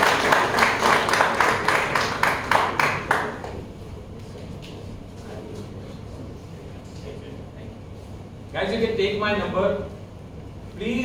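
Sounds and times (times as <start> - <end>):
audience applause: 0.0 - 3.6
people clapping in steady beat: 0.0 - 3.7.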